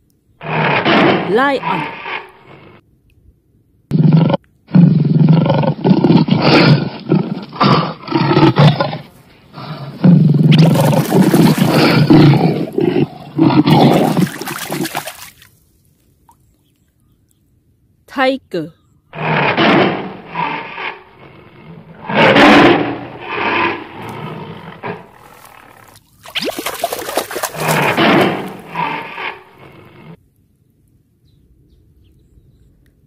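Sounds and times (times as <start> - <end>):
lion roaring and grunting: 0.4 - 2.8, 3.9 - 15.0, 19.2 - 25.9, 26.9 - 30.2.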